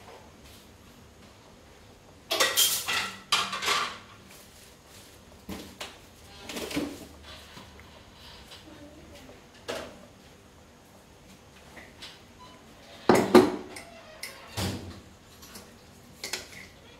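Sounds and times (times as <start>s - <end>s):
metal kitchenware clattering: 2.3s - 4.1s.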